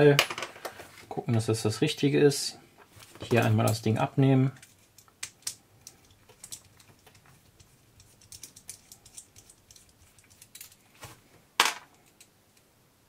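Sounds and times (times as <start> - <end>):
small plastic parts clicking: 4.6 - 10.8.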